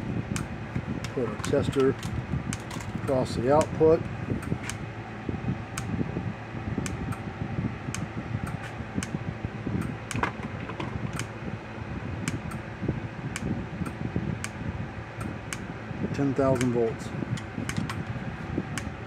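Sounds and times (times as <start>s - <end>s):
steady fan-like hum: 0.0s - 19.0s
electric fence charger ticks: 3.5s - 3.8s, 16.5s - 16.8s.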